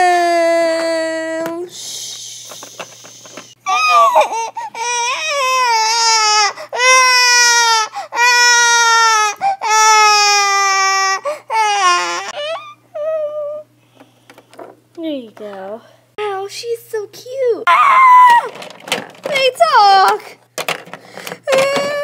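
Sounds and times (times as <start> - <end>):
child imitating baby crying: 3.6 - 13.7.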